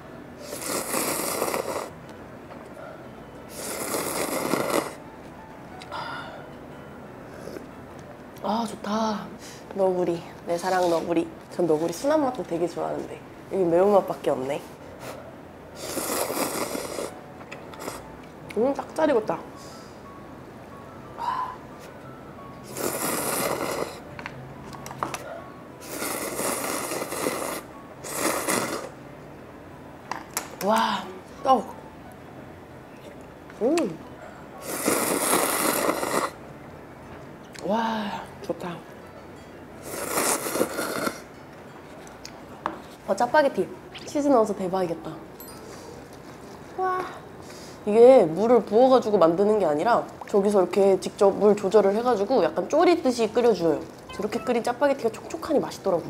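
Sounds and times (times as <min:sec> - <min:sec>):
person slurping noodles: 0:00.4 - 0:01.9, 0:03.5 - 0:05.0, 0:15.8 - 0:17.1, 0:17.8 - 0:18.0, 0:22.7 - 0:24.0, 0:25.8 - 0:28.9, 0:34.6 - 0:36.4, 0:39.8 - 0:41.3.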